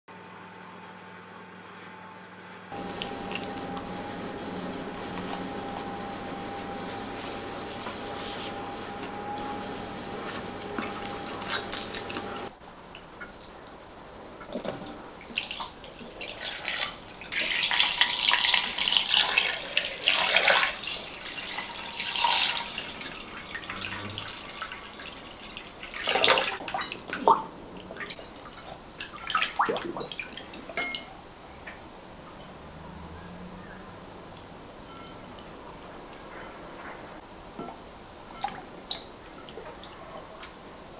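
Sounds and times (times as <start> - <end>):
water pouring into bowl: 15.2 - 31.1.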